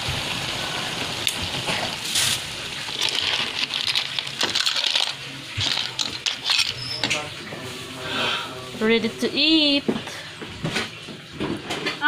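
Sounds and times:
shells clinking against ladle and bowl: 0:03.0 - 0:07.2.

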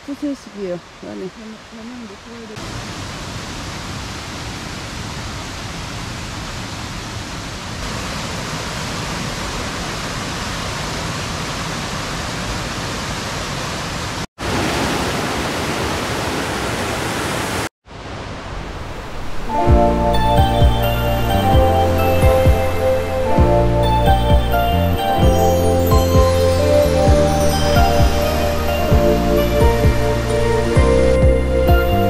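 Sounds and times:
stream rushing over rocks: 0:01.8 - 0:19.6.

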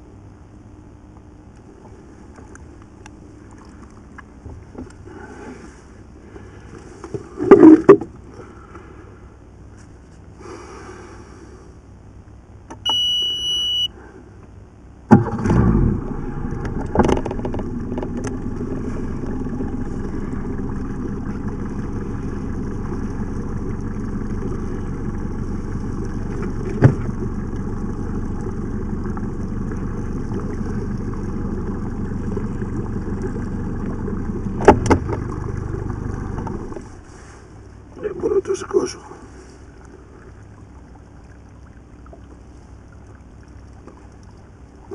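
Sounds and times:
boat engine running: 0:00.0 - 0:44.9
short steady beep: 0:12.8 - 0:14.0.

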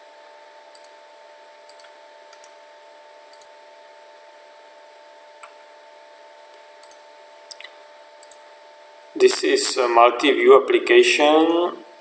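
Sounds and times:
faint hum and hiss: 0:00.0 - 0:12.0
computer mouse clicking: 0:00.7 - 0:01.0, 0:01.7 - 0:02.6, 0:03.3 - 0:03.5, 0:06.8 - 0:08.4.

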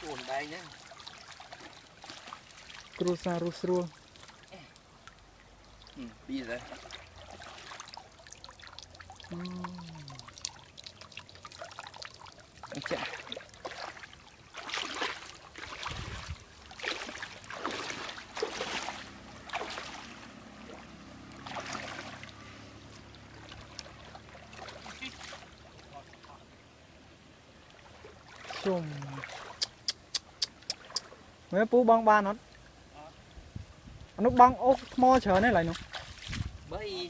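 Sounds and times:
water splashing off a fish trap: 0:00.0 - 0:26.2, 0:34.8 - 0:36.5.

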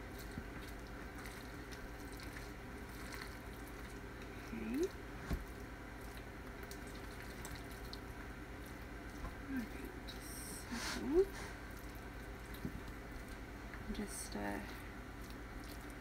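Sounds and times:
potato salad squishing in bowl: 0:00.0 - 0:10.3, 0:11.1 - 0:16.0.

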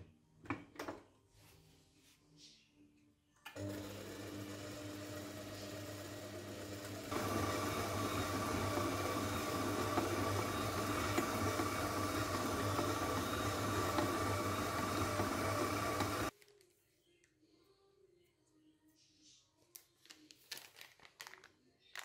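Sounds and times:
stand mixer motor running: 0:03.6 - 0:16.3.

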